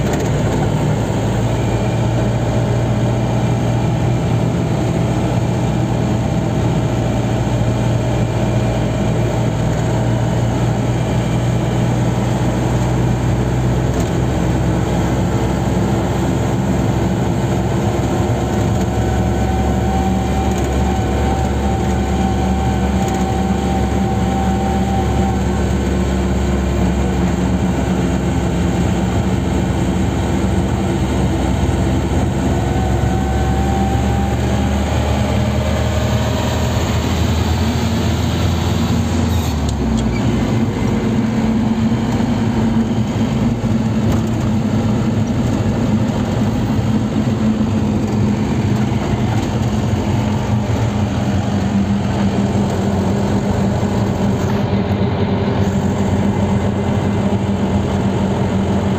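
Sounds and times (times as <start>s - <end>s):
car engine and road noise: 0.0s - 58.9s
deep low hum: 36.2s - 58.9s.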